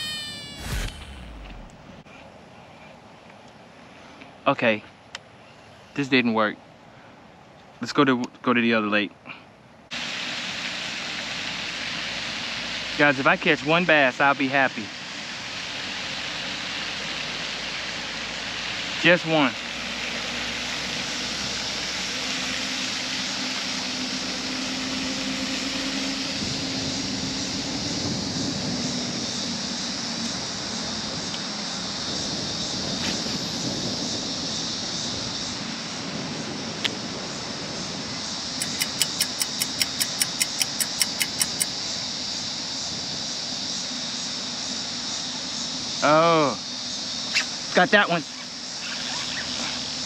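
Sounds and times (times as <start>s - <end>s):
high insect drone: 0.0s - 1.9s, 13.0s - 50.0s
wind on microphone: 26.3s - 39.0s
fishing reel ticking: 38.6s - 41.7s.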